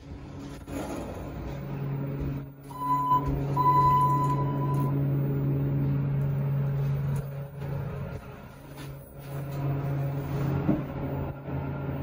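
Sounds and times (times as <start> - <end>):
elevator low hum: 0.0 - 12.0
electronic beeps: 2.7 - 5.0.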